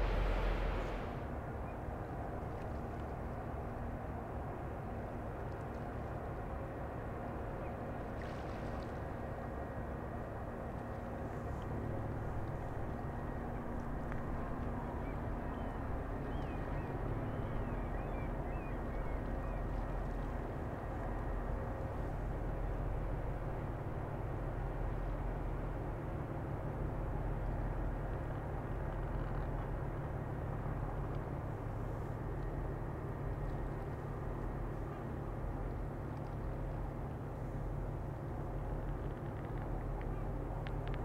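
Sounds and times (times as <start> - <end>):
ship engines droning: 0.0 - 2.4
faint steady hum: 0.0 - 41.0.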